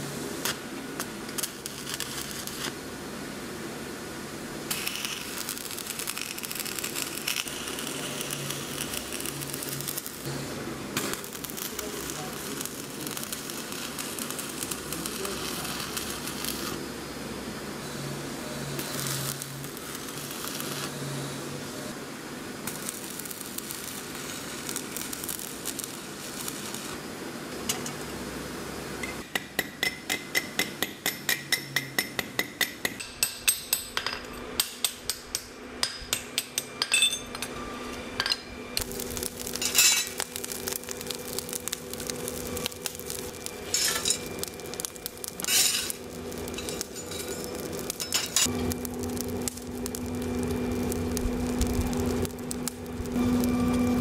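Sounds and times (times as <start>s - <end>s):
coal raked in a forge: 0.0s - 2.8s, 4.6s - 16.8s, 18.0s - 21.2s, 22.5s - 28.0s, 32.9s - 54.0s
arc welding crackling hiss: 0.0s - 54.0s
steady low hum: 35.3s - 54.0s.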